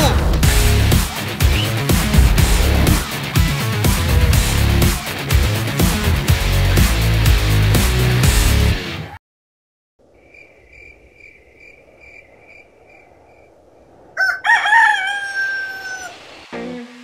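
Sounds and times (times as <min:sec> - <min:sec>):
crickets chirping: 0:10.0 - 0:17.0
rooster crowing: 0:14.1 - 0:16.3.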